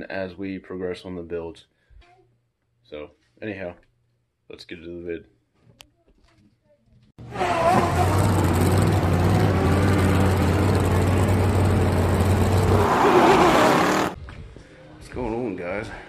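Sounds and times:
car engine running: 0:07.6 - 0:14.2.

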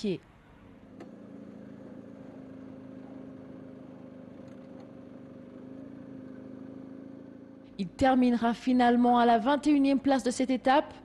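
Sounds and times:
vehicle engine humming: 0:00.5 - 0:08.3.

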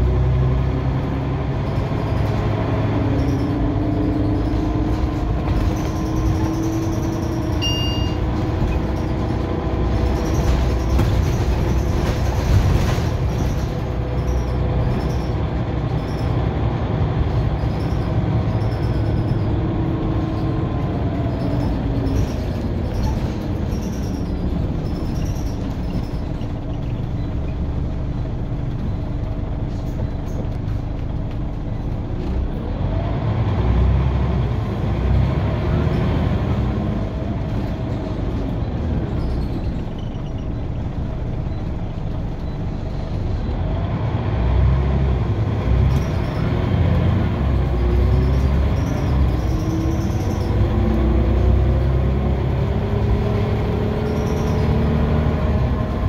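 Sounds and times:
bus engine rumble: 0:00.0 - 0:56.0
road noise: 0:00.0 - 0:56.0
drivetrain whine: 0:00.6 - 0:11.3
short high beep: 0:07.6 - 0:08.3.

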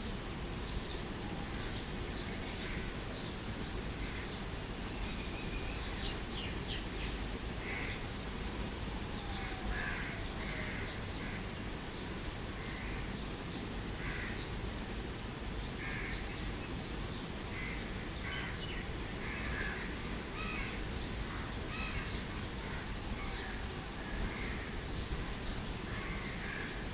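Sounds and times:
outdoor background noise: 0:00.0 - 0:26.9
birds calling: 0:00.6 - 0:08.2, 0:09.1 - 0:26.9.

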